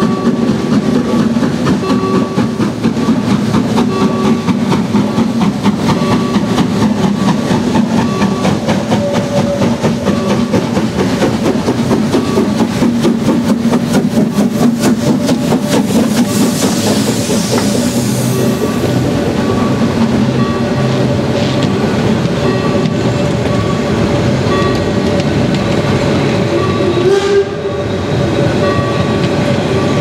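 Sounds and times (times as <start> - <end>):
hiss of steam: 0.0 - 22.2
coaches rolling over rail joints: 0.0 - 30.0
steam locomotive exhaust beats: 0.0 - 30.0.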